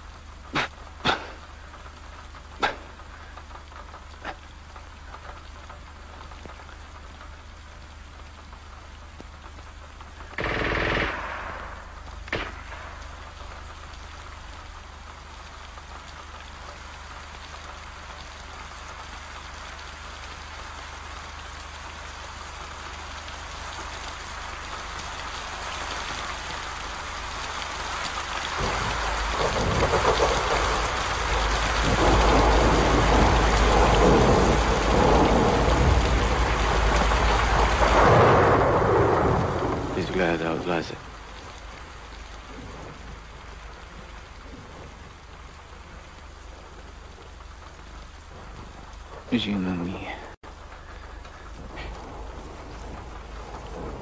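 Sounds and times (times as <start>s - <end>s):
rain falling: 0.0s - 54.0s
thunder rumbling: 8.4s - 54.0s.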